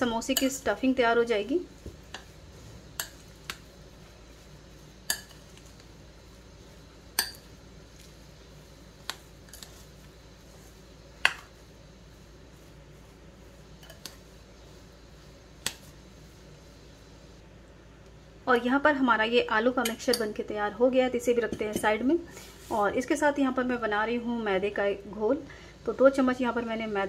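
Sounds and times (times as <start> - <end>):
spoon clinking against a bowl: 5.1 - 5.5, 7.2 - 7.5.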